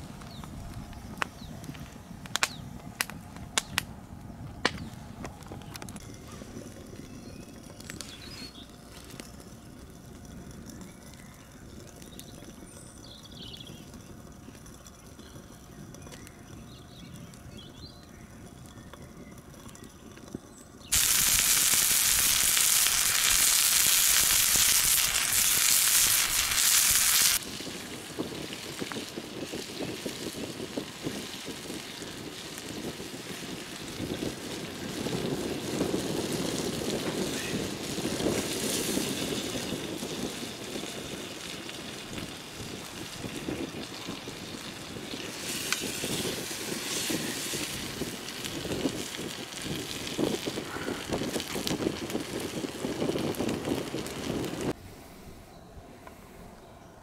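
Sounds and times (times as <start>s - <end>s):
campfire crackling: 0.0s - 55.3s
steaks sizzling in a frying pan: 20.9s - 33.9s, 37.2s - 52.8s.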